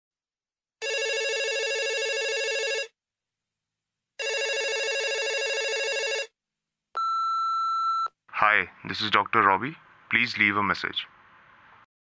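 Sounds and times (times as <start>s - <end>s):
telephone ringing: 0.8s - 3.0s, 4.2s - 6.4s.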